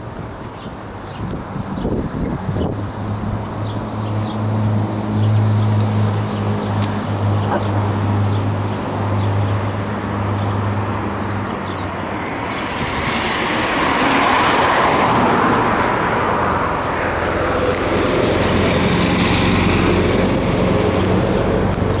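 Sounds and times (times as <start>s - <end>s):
vehicles rushing past: 0.0s - 22.0s
small birds chirping: 0.5s - 4.5s, 5.2s - 13.9s
low engine hum: 2.0s - 22.0s.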